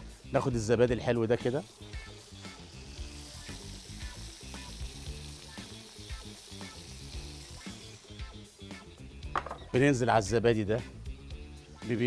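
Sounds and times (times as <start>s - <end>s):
quiet music: 0.0s - 12.0s
chicken sizzling on a griddle: 1.4s - 9.1s.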